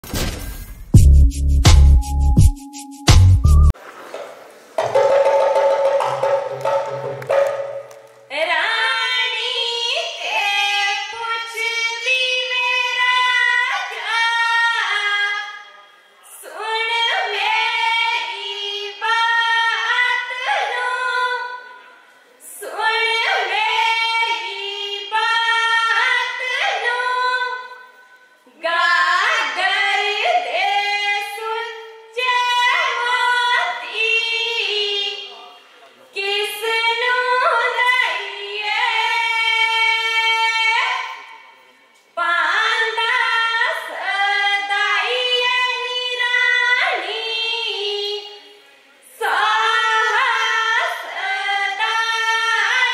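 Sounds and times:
sustained note: 2.0 - 3.7
women singing folk song: 28.5 - 35.2, 49.1 - 52.9.

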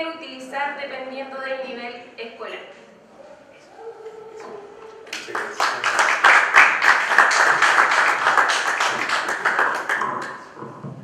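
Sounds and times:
audience applauding: 5.1 - 10.6.

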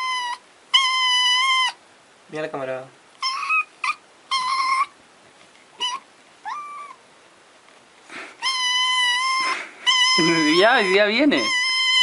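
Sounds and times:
kitten meowing: 5.8 - 7.0, 8.4 - 12.0.

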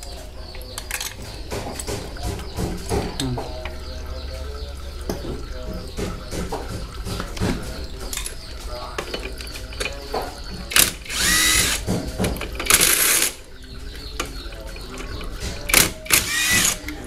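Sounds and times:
impact wrench rattling bursts: 10.7 - 11.9, 15.7 - 16.8.

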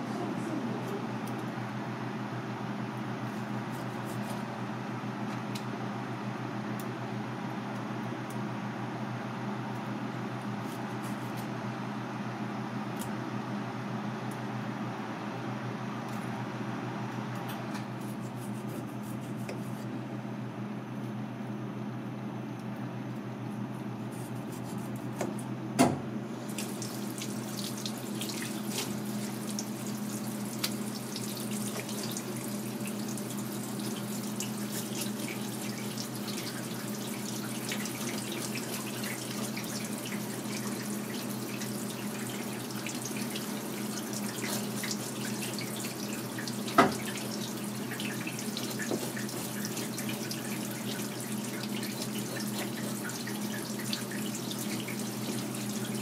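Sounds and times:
tap water splashing: 26.5 - 56.0.

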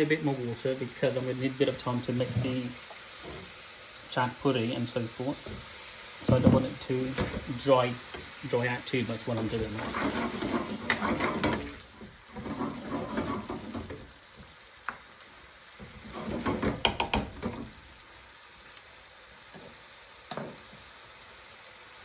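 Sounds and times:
curry sizzling in a pan: 0.0 - 22.0
spoon stirring and scraping: 9.3 - 14.1, 15.8 - 17.6
spoon knocking against pan: 15.8 - 17.8, 20.3 - 20.7.

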